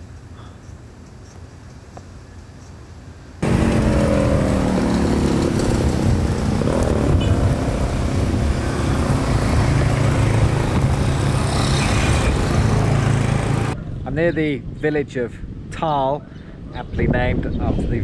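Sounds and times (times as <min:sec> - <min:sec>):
motorcycles riding by: 0:03.4 - 0:13.8
low engine rumble: 0:03.4 - 0:14.3.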